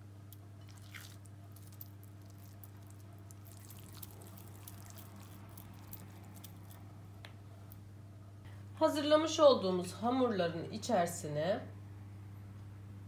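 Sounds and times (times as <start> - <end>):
low steady hum: 0.0 - 13.0
wet squishes of dough: 0.6 - 7.4.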